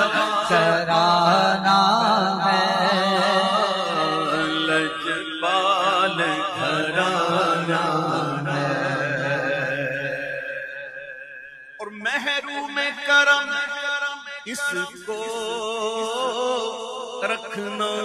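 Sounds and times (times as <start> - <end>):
man singing ornamented phrase: 0.0 - 10.5.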